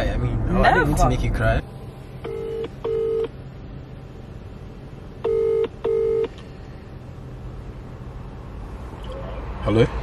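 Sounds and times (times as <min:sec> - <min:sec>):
telephone ringback tone: 0:05.2 - 0:06.3.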